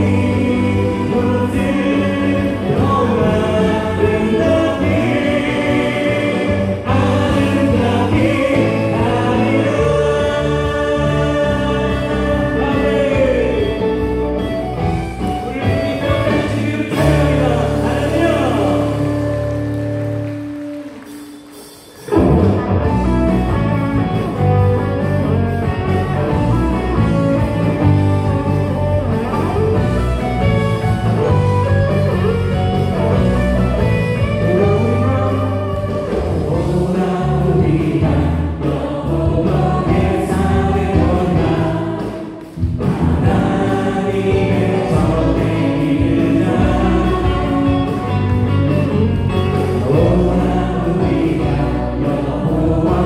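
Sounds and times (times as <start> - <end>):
group singing: 0.0 - 20.0, 32.2 - 53.0
bass guitar: 0.0 - 53.0
drums: 0.0 - 53.0
keyboard: 0.0 - 53.0.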